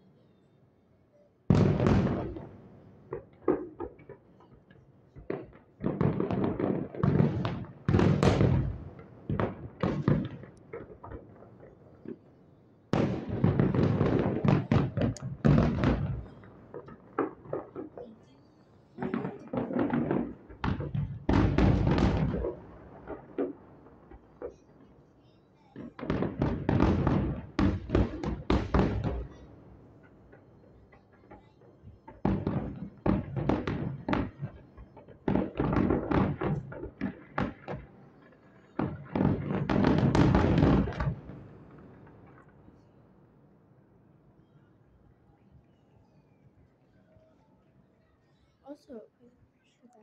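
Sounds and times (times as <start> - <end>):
fireworks booming: 1.5 - 12.3, 12.9 - 18.3, 19.0 - 24.8, 25.8 - 42.7.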